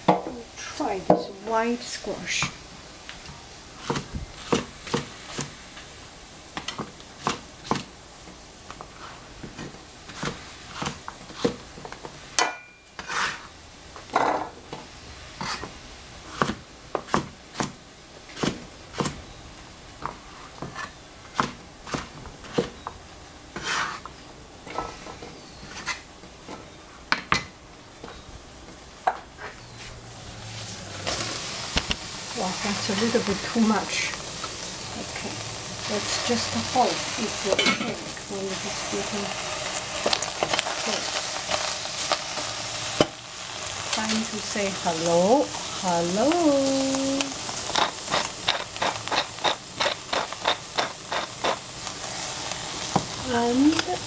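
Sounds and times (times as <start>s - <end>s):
food sizzling in a pot: 0.0s - 17.7s, 29.0s - 54.0s
knife chopping on plastic board: 16.3s - 17.8s.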